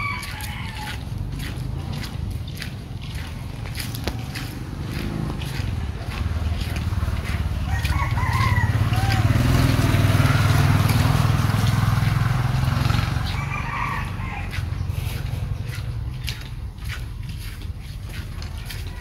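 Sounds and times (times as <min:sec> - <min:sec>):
rooster crowing: 0:00.0 - 0:01.0, 0:07.6 - 0:09.6, 0:13.0 - 0:14.8
footsteps: 0:00.0 - 0:19.0.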